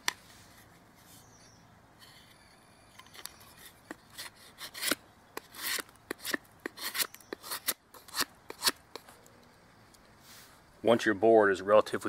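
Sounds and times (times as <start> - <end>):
knife scraping wood: 0.0 - 9.2.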